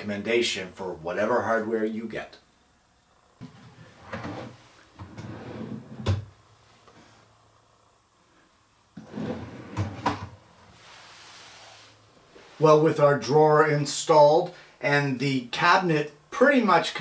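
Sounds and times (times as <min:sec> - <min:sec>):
drawer sliding on slides: 0:03.4 - 0:06.3, 0:09.0 - 0:12.5.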